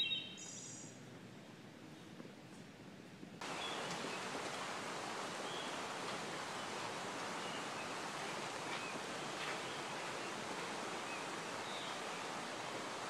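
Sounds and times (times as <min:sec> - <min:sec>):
creek water flowing: 0:03.4 - 0:13.0.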